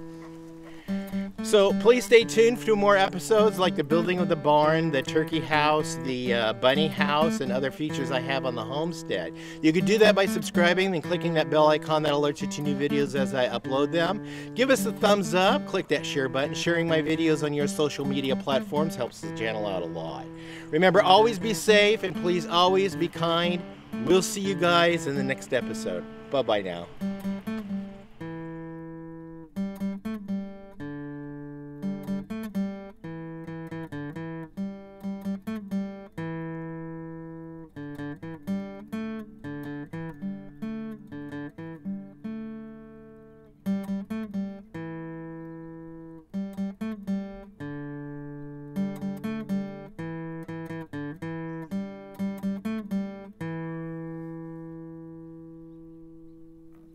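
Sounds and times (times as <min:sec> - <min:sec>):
acoustic guitar plucking and chords: 0:00.0 - 0:56.9.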